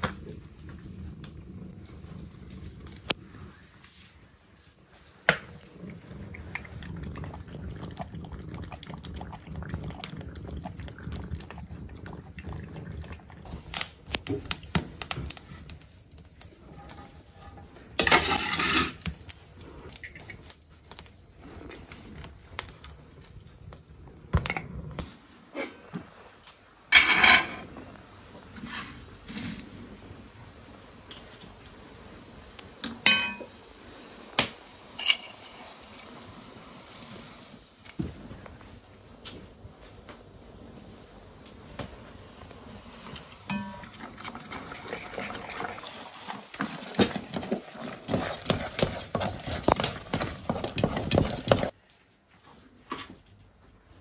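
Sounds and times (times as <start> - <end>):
pots clattering on steel stovetop: 16.7 - 19.2, 26.9 - 27.7, 32.8 - 33.6, 43.5 - 51.8.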